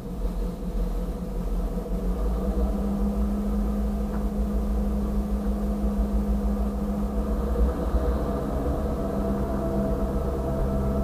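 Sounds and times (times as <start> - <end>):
steady hum: 0.0 - 11.0
train low rumble: 0.0 - 11.0.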